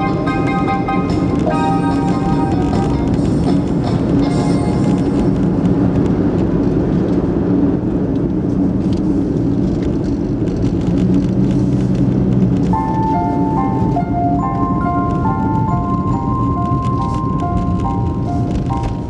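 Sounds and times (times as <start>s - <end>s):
background music: 0.0s - 5.7s, 12.7s - 19.0s
car engine and tyre noise: 0.0s - 19.0s.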